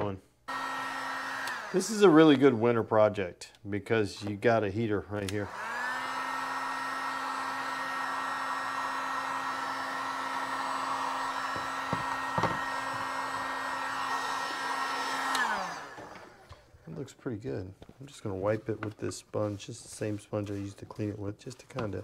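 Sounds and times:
heat gun running: 0.5 - 2.2, 5.4 - 16.7.

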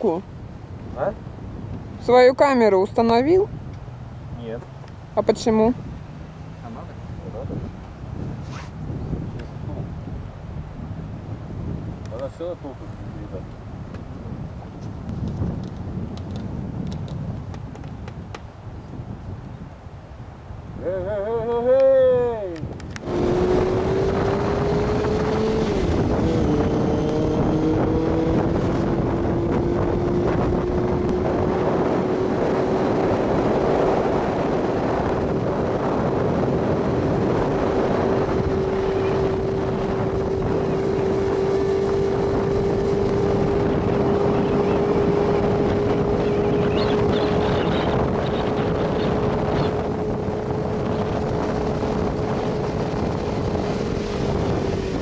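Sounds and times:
wind rushing over microphone: 0.0 - 55.0
motorcycle engine running: 23.0 - 55.0.

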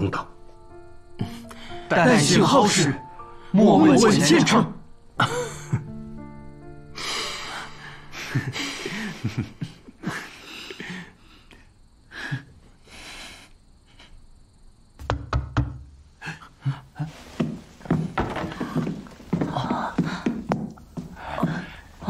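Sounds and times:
knocks on wooden door: 15.0 - 15.9.

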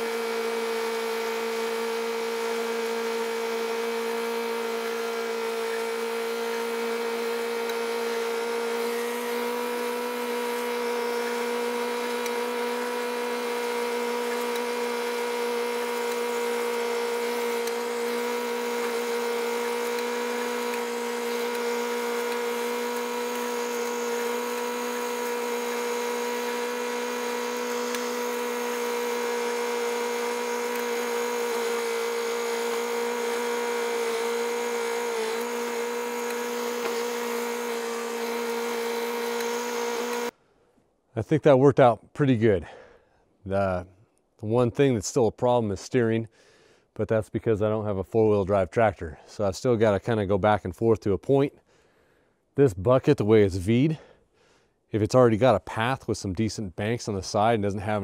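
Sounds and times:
tractor engine whining steadily: 0.0 - 40.3.

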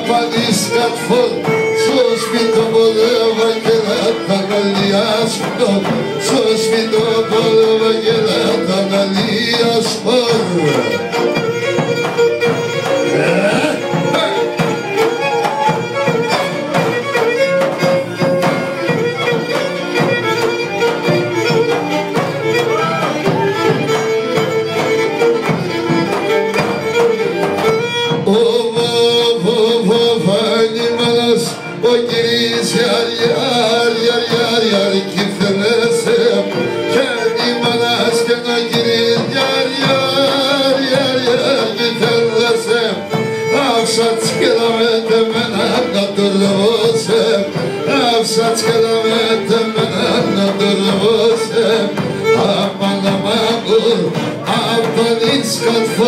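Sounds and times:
man singing into a microphone: 0.0 - 11.9, 12.7 - 20.1, 28.0 - 56.0
bowed lyra melody: 0.0 - 28.2
large drum beat: 0.0 - 56.0.

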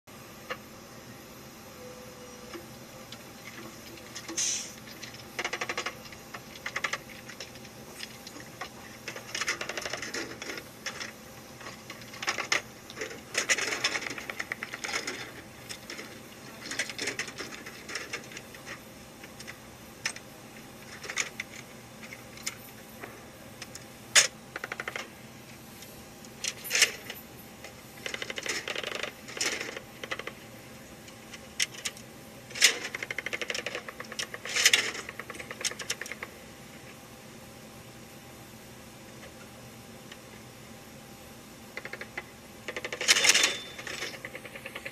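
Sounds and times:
metallic clicks and clattering: 2.5 - 25.1, 26.2 - 30.4, 31.0 - 36.3, 41.8 - 44.9.

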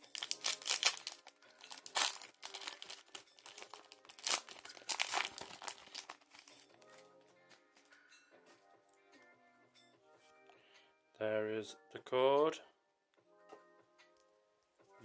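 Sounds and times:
plastic foil wrapper crinkling and tearing: 0.0 - 6.9.

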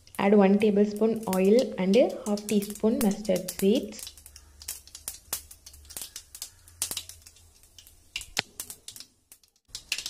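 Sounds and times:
seeds popping in hot oil: 0.0 - 10.0.

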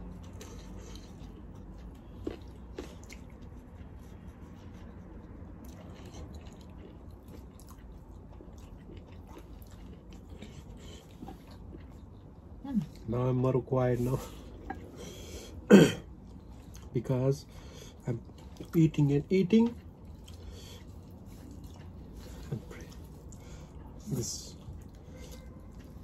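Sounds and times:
faint chewing: 0.0 - 26.0
low steady hum: 0.0 - 26.0.

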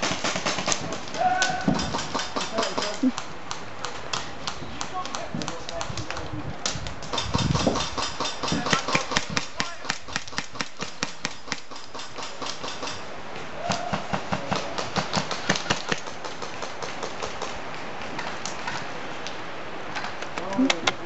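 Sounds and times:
airsoft guns firing: 0.0 - 3.0, 7.1 - 13.0.

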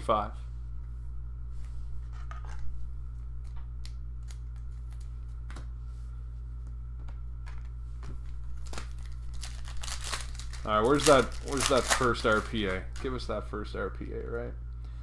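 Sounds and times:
low electrical hum: 0.0 - 15.0
trading cards being handled: 7.0 - 13.4.

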